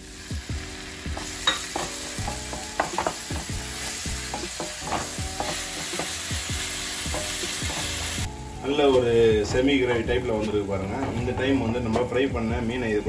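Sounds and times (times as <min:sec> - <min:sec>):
masala sizzling in a frying pan: 0:00.0 - 0:08.4
spatula scraping and knocking on pan: 0:01.1 - 0:08.2.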